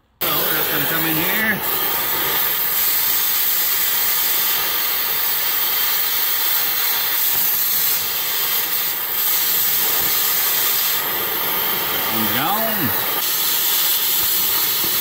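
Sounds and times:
cutting torch hissing: 0.0 - 15.0.

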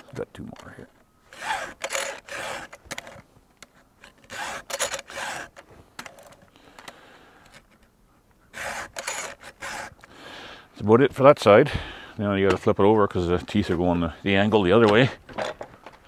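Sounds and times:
file rasping on steel teeth: 8.5 - 10.0.

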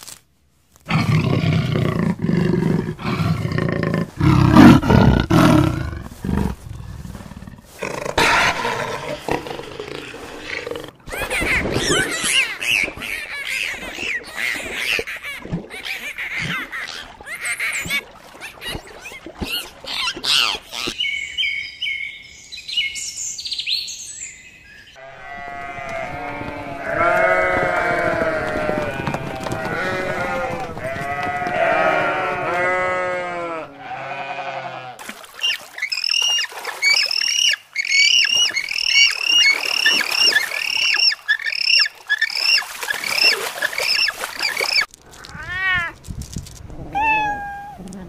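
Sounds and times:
flock of sheep bleating: 25.0 - 35.0.

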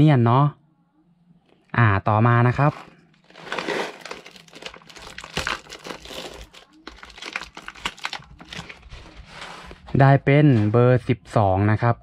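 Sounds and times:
plastic wrapper crinkling and tearing: 3.2 - 9.0.

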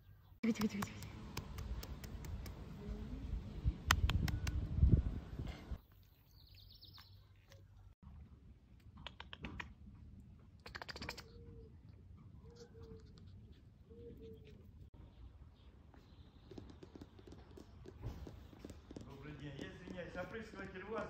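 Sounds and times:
dog claws clicking on paving: 0.5 - 2.6, 16.5 - 20.8.

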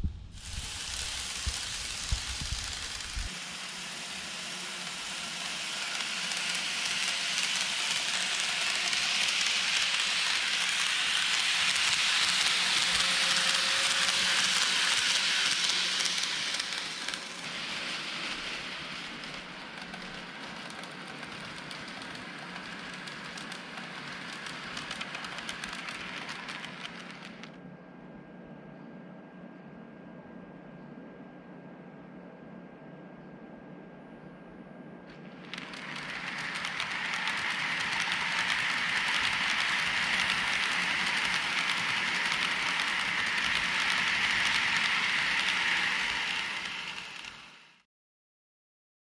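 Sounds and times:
low steady hum: 0.0 - 0.8
model train wheels rattling on rails: 0.4 - 27.6, 35.2 - 47.8.

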